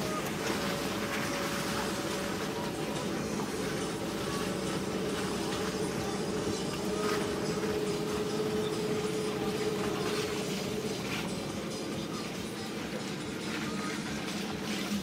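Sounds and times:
car engine running under load: 0.0s - 15.0s.

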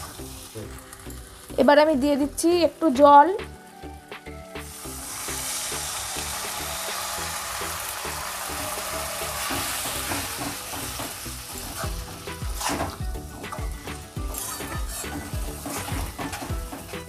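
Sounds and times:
food sizzling in a wok: 0.0s - 17.0s
metal spatula scraping pan: 9.4s - 17.0s.

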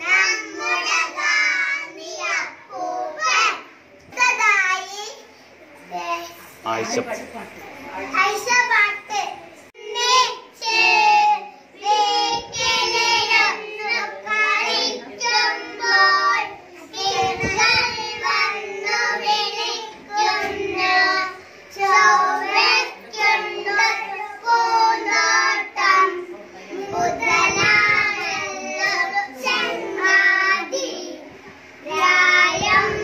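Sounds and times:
boys singing into a microphone: 9.8s - 33.0s.

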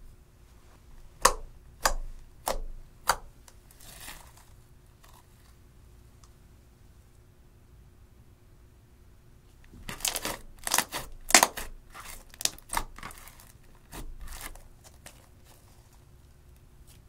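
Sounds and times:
slime crackling and popping: 9.8s - 15.6s.

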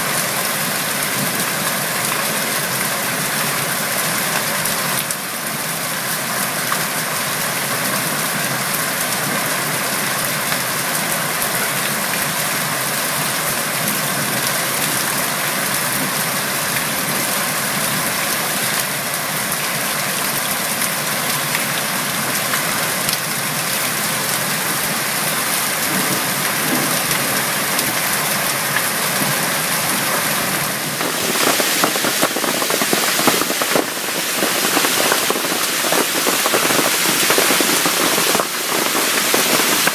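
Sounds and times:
hail and heavy rain: 0.0s - 39.9s
hailstones cracking on hard surfaces: 25.2s - 39.9s.

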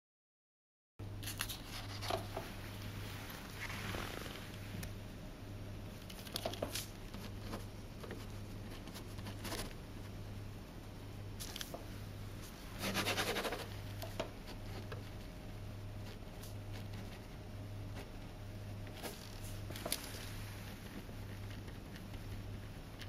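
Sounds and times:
steady low hum: 1.0s - 23.0s
pen scratching on paper: 12.8s - 13.8s
paper rustling: 19.0s - 22.1s.

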